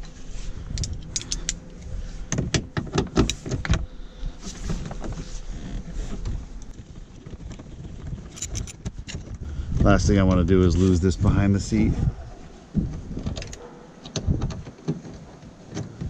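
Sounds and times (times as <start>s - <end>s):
metal tools clicking and clinking: 0.8s - 1.6s, 8.3s - 9.2s.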